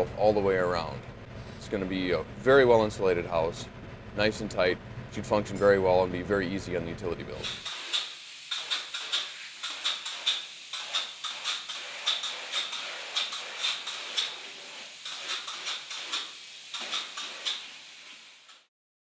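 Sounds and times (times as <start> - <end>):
spray foam gun hissing: 7.4 - 18.7.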